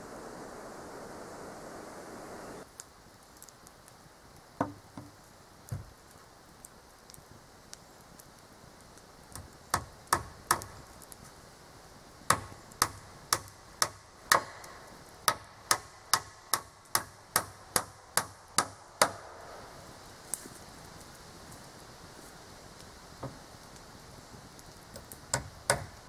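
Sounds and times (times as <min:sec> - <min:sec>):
hammer striking nails into wood: 0:04.6 - 0:05.1, 0:12.3 - 0:14.6, 0:15.3 - 0:19.2, 0:25.3 - 0:26.0.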